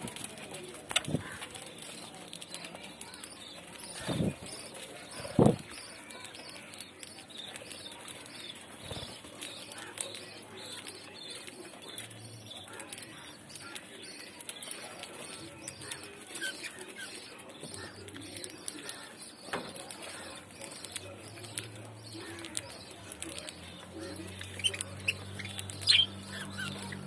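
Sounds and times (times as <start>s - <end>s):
budgerigars chattering: 7.3s - 27.0s.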